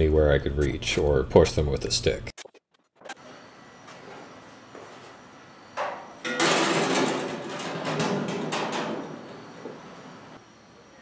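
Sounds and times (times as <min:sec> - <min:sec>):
metal sheet clattering and wobbling: 0:06.2 - 0:09.3.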